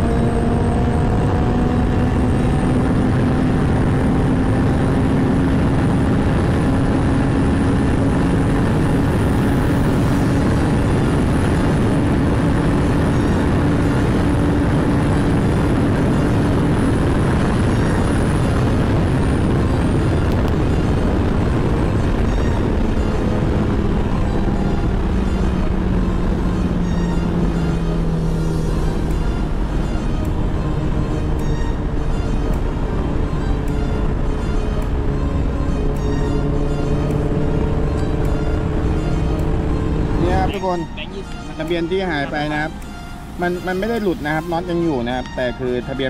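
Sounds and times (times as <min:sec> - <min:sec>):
wind rush on microphone: 0:00.0 - 0:41.0
motorcycle engine drone: 0:00.0 - 0:46.0.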